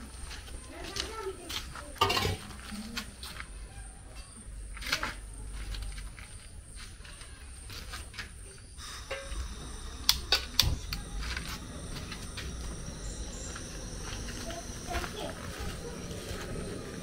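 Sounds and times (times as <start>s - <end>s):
gas burner igniter clicks: 8.8s - 13.6s
high gas hiss: 8.8s - 17.0s.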